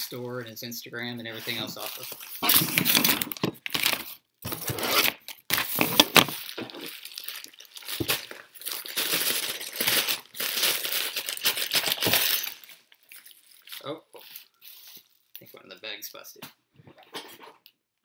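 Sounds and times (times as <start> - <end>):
bubble mailer tearing and crinkling: 1.5 - 15.4.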